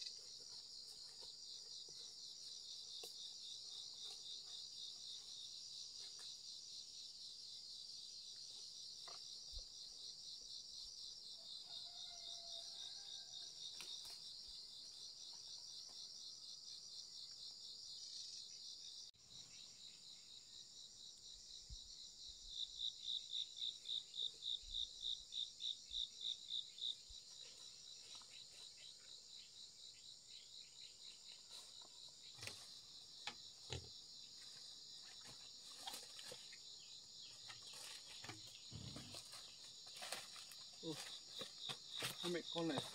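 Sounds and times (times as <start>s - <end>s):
insects trilling chorus: 8.2s - 17.4s, 22.4s - 42.9s
footsteps on dry leaves: 37.4s - 42.9s.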